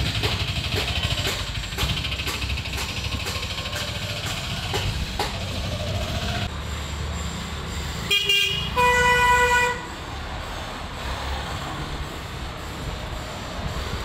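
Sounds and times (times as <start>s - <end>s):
vehicle horn honking: 8.1s - 10.0s.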